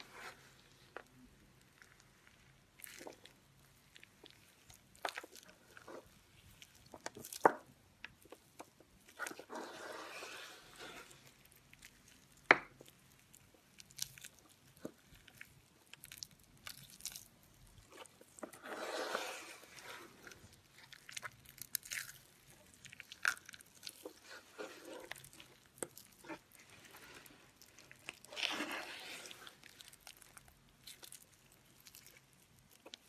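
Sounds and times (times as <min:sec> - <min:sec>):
soap crunching between hands: 0:11.1 - 0:18.4, 0:19.1 - 0:33.0.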